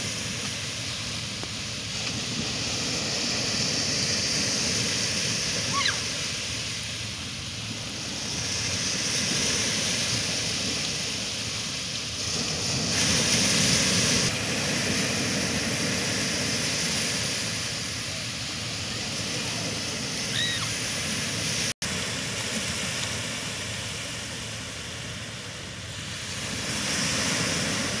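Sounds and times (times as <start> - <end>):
small waves breaking on sand: 0.0 - 28.0.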